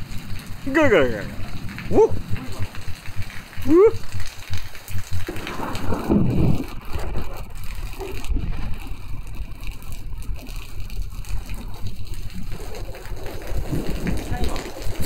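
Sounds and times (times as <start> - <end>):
heavy rain on pavement: 0.0 - 15.0
thunder rumble: 0.0 - 15.0.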